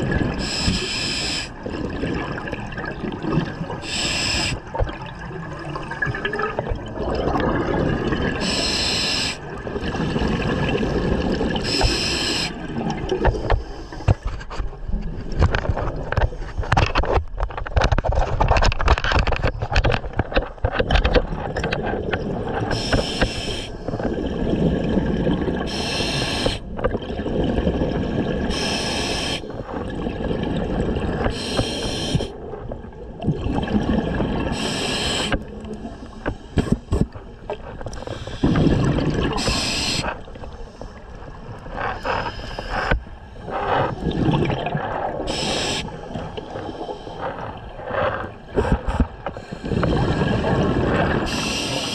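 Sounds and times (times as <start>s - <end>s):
regulator exhalation bubbly hiss: 28.5s - 29.5s, 31.3s - 32.3s, 38.1s - 40.2s, 45.2s - 47.2s, 51.2s - 51.9s.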